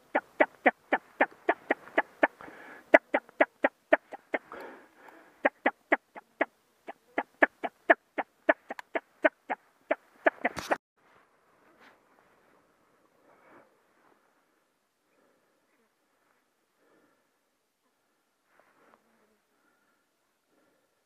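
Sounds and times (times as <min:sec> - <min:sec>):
duck quacking: 0:00.0 - 0:04.6, 0:05.4 - 0:10.8
rush of wings: 0:00.0 - 0:04.6, 0:07.2 - 0:10.8.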